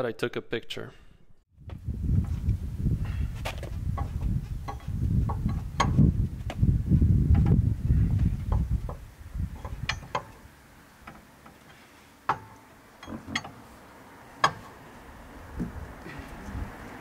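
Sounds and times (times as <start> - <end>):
wrench clinking on metal bolts: 9.6 - 10.4, 11.0 - 13.7.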